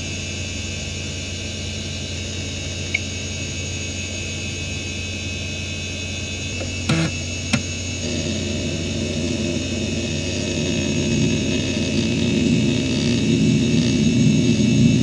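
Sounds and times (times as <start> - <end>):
hard drive spinning whine: 0.0 - 15.0
hard drive clicks: 6.6 - 7.7.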